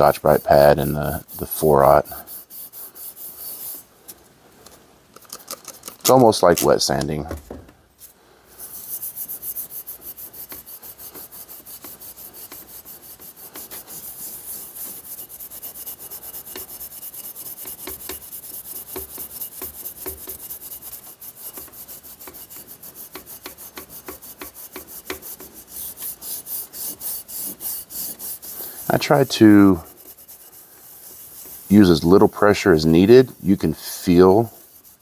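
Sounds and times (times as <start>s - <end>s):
scouring pad scrubbing metal: 8.8s - 35.0s.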